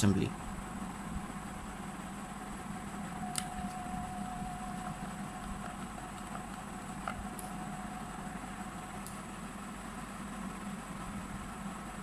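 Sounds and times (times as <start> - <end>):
low room hum: 0.0 - 12.0
faint thin tone: 3.2 - 6.2.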